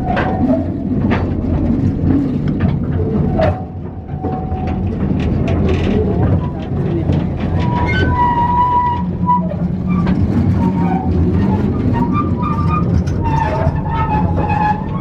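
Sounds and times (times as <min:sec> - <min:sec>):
trolley train rumbling and rattling: 0:00.0 - 0:15.0
metal wheels squealing on track: 0:07.5 - 0:15.0.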